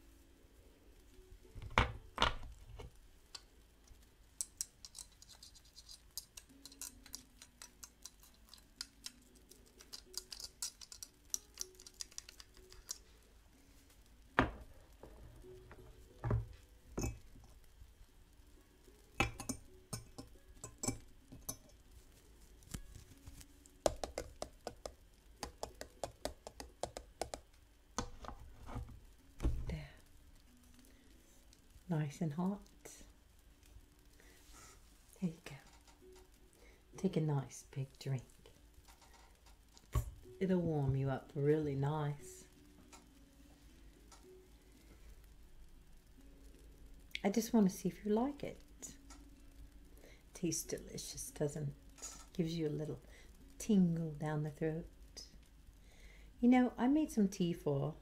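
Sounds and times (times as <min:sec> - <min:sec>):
faint background tones: 0:00.0 - 0:58.0
cups and utensils clinking: 0:16.2 - 0:17.4, 0:19.2 - 0:21.8.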